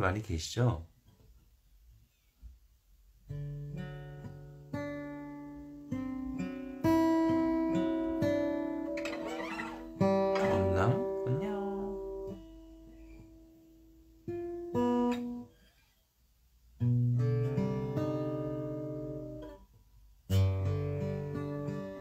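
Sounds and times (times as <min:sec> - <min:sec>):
acoustic guitar strummed chords: 0:03.3 - 0:15.5, 0:16.8 - 0:19.6, 0:20.3 - 0:22.0.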